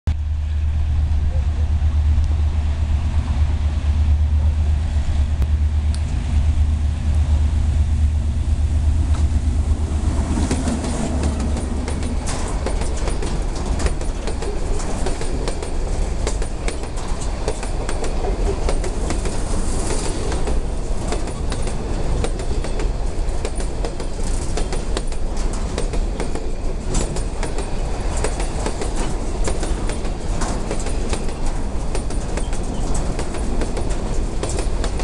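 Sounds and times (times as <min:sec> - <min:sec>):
freight train rolling past: 0:00.1 - 0:35.0
wheels clacking over rail joints: 0:08.6 - 0:35.0.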